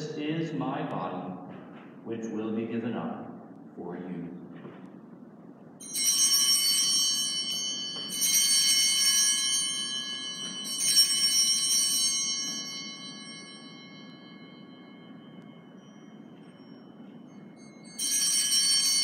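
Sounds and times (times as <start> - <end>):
altar bells ringing: 5.8 - 19.0.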